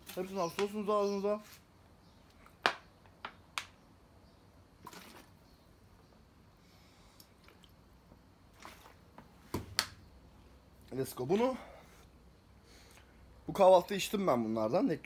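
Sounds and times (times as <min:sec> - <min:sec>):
person gulping water: 0:04.8 - 0:05.4
liquid swishing in bottle: 0:08.5 - 0:09.1.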